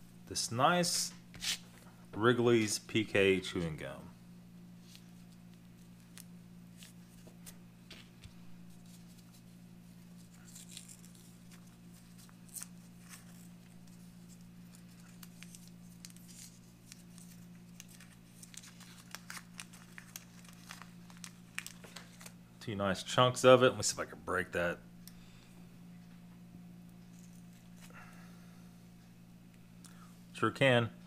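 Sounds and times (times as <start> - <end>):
steady low hum: 0.0 - 31.0
paper wrapper crinkling and tearing: 10.2 - 22.4.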